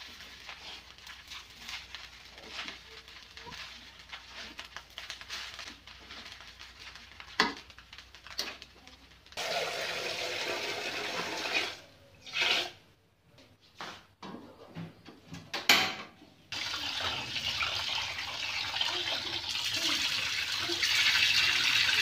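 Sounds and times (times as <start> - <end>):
tap water running into pot: 9.4 - 11.8, 16.5 - 22.0.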